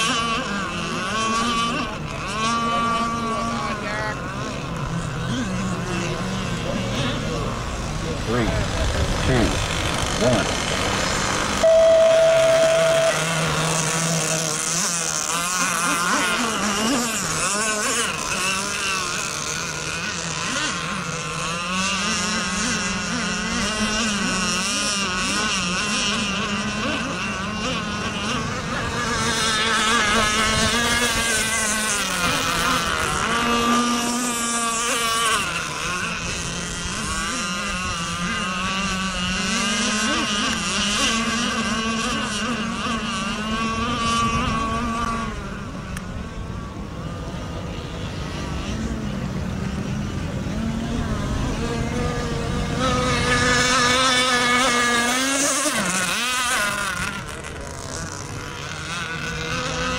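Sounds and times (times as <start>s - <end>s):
model boat motors whining: 0.0s - 59.9s
short loud steady tone: 11.5s - 13.4s.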